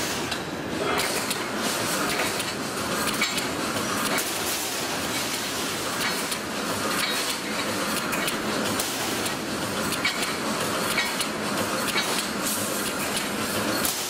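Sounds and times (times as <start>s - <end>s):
welding machine clattering: 0.0s - 14.0s.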